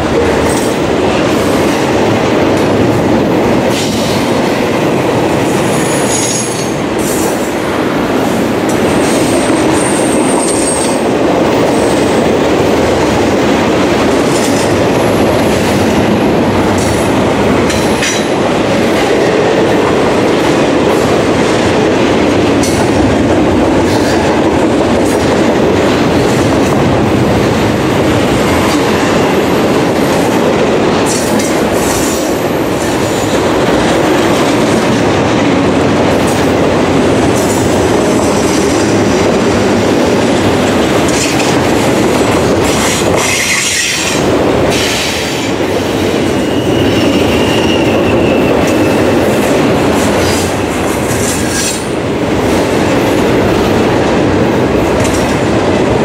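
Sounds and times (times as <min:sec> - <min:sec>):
train wheels rumbling on rail: 0:00.0 - 0:56.0
wheels clacking over rail joints: 0:08.2 - 0:45.7
high wheel squeals: 0:46.4 - 0:49.0.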